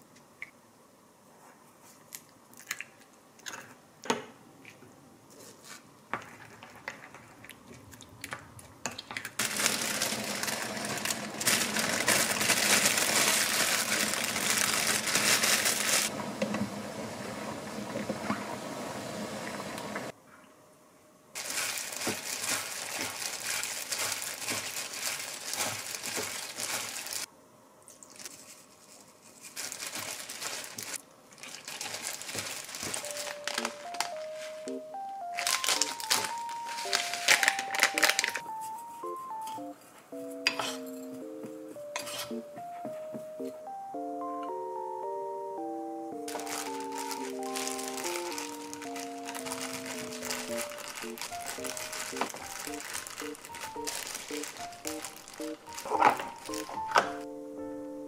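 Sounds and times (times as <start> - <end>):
plastic glove crinkling: 9.3 - 16.1, 21.4 - 27.3, 28.0 - 39.6, 46.2 - 57.3
spoon scraping in ceramic ramekin: 42.0 - 42.4.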